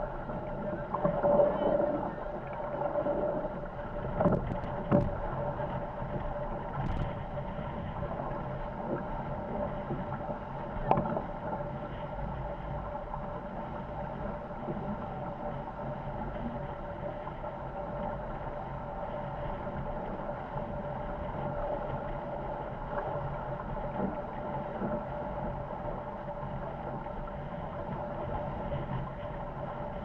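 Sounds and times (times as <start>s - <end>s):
wind noise: 0.0s - 10.1s
steady hum: 0.0s - 30.0s
water rushing along hulls: 0.0s - 30.0s.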